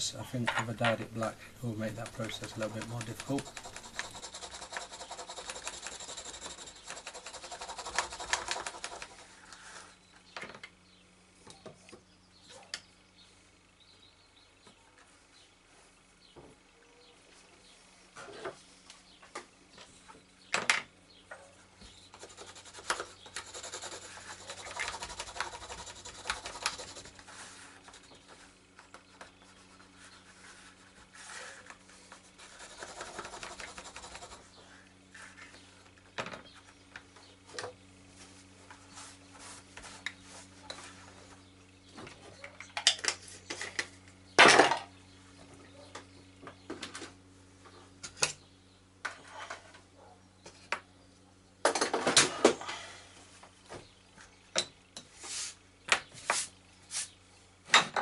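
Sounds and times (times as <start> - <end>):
hand tool rubbing leather: 1.6 - 9.3, 22.1 - 35.4.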